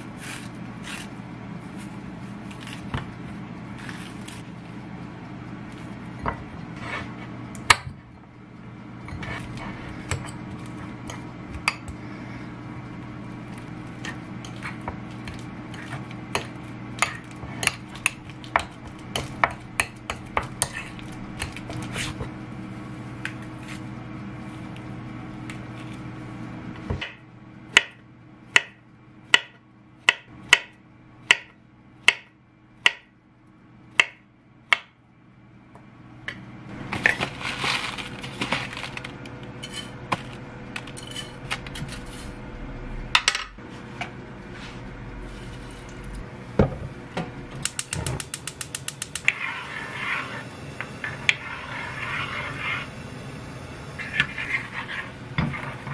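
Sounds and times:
fork scraping ceramic bowl: 49.2s - 52.9s, 54.0s - 55.9s.

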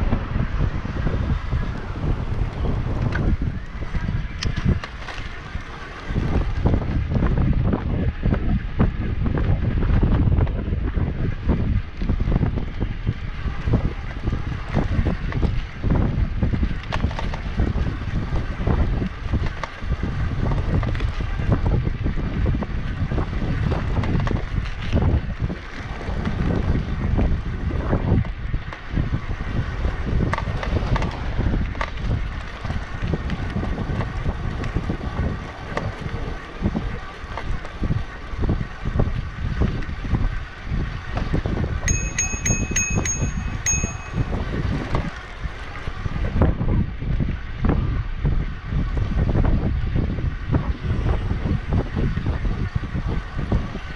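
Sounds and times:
wind buffeting microphone: 0.0s - 53.9s
short high beeps: 41.9s - 44.3s.

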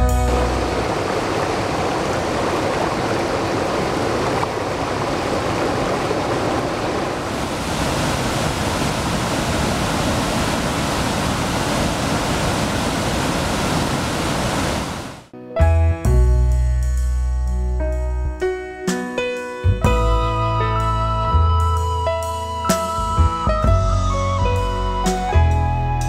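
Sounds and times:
waterfall and rapids rushing: 0.0s - 15.3s.

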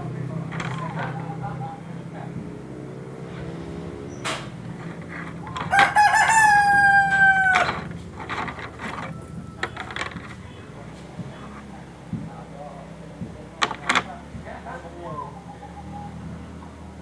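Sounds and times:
rooster crowing: 5.4s - 9.6s.

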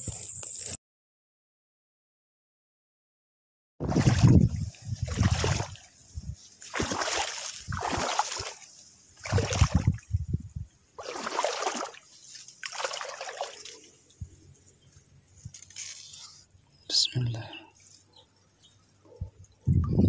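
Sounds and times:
water sloshing around wading legs: 3.8s - 10.0s, 11.0s - 14.2s.

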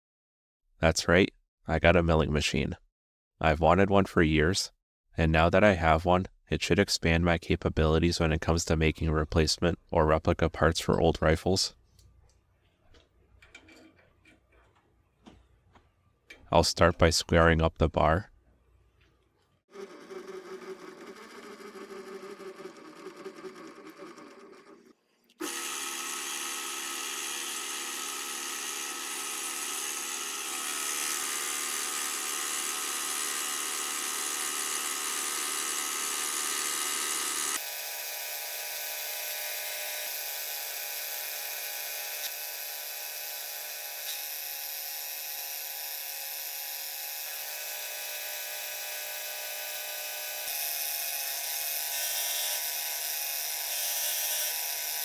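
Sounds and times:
milling machine cutting steel: 19.8s - 39.8s.

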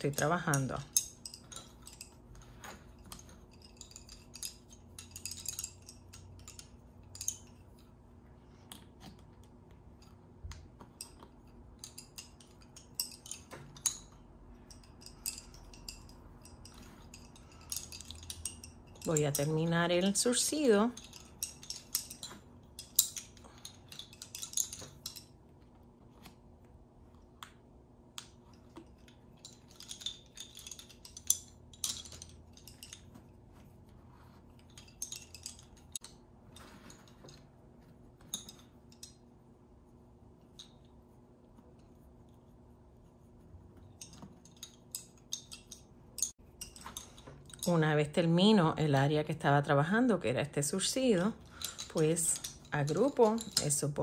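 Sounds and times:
wooden bobbins clicking together: 51.4s - 53.9s.

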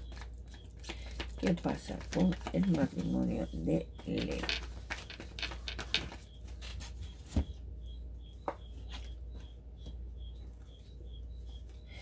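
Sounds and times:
cards tapping and rustling: 0.0s - 7.5s.

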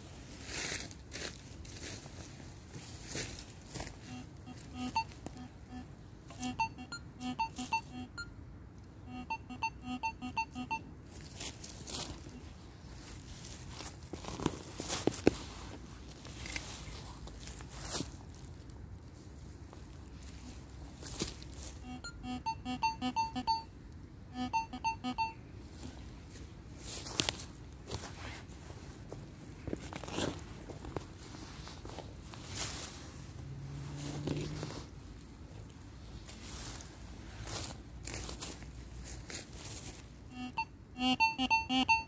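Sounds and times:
rustle: 0.0s - 5.4s, 11.0s - 21.8s, 25.6s - 40.2s
metal detector beeping: 4.0s - 8.3s, 9.1s - 10.9s, 21.8s - 23.7s, 24.3s - 25.4s, 40.3s - 42.0s.

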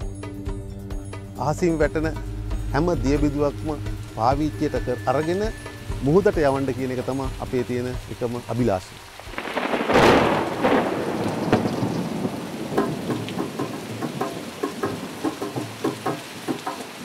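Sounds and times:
rain falling on water: 2.8s - 17.0s
thunder crash: 9.3s - 15.2s.

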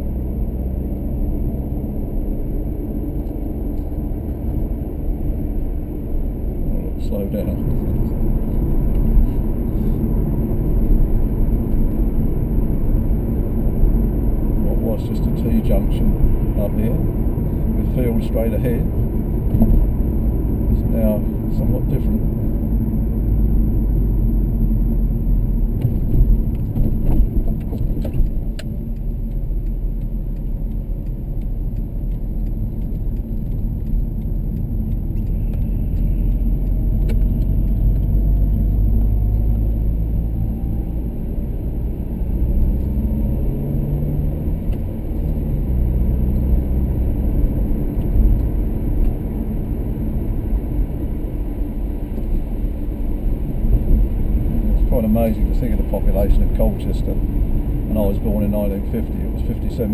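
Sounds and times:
car engine and road noise: 0.0s - 59.9s.

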